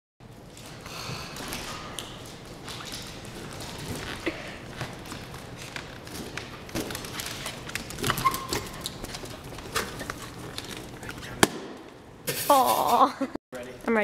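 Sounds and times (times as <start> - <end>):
dog claws clicking on wooden floor: 0.4 - 11.0.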